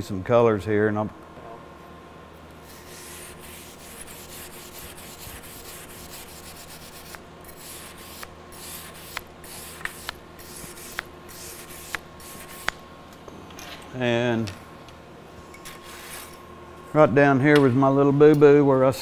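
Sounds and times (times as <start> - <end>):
wire brush scrubbing metal: 2.7 - 12.7.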